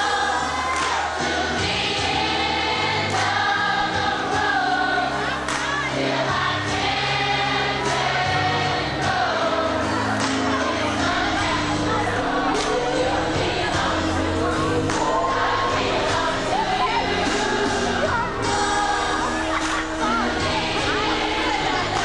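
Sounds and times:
choir singing gospel song: 0.0s - 22.0s
held bass notes: 6.4s - 22.0s
steady beat: 10.3s - 22.0s.

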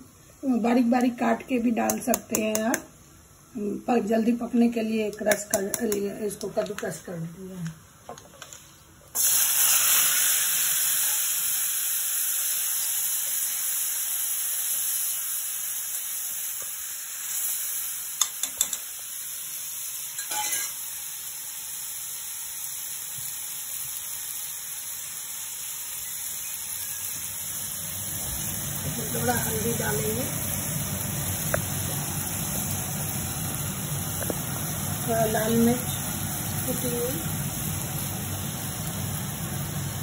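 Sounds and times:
tomato sizzling in hot oil: 9.1s - 40.0s.

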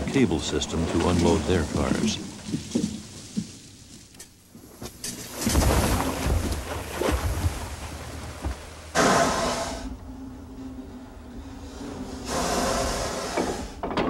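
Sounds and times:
logs splashing into water: 5.1s - 9.3s
steady hum: 6.1s - 13.8s
loud hiss: 9.0s - 9.9s, 12.2s - 13.8s.

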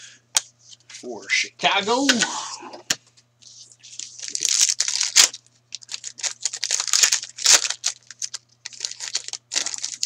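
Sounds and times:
foil wrapper tearing and crinkling: 3.9s - 10.0s.

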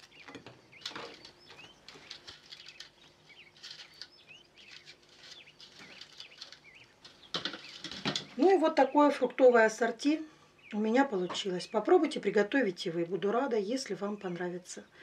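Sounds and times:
small bird chirping: 0.0s - 9.4s.

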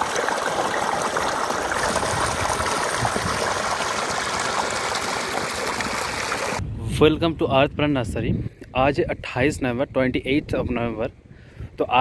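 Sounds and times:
water pouring and splashing on soil: 0.0s - 6.6s.

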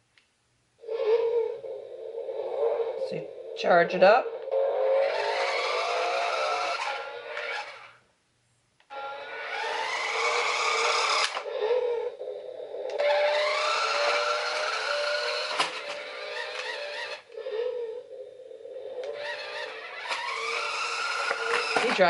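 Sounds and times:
electronic toy sound effects: 4.0s - 7.9s, 8.9s - 18.2s.

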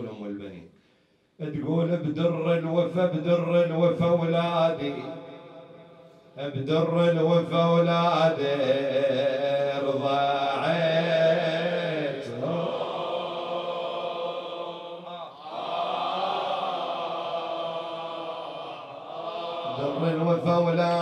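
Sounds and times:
man chanting a lament: 0.0s - 0.7s, 1.4s - 5.6s, 6.4s - 13.8s, 19.0s - 21.0s.

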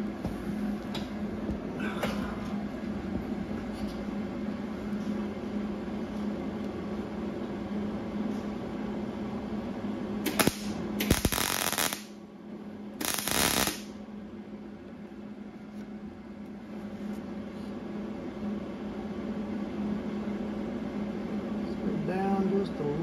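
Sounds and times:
steady low hum: 0.0s - 23.0s
welding arc crackle: 10.2s - 12.2s, 13.0s - 14.0s
welder click: 13.0s - 13.9s.

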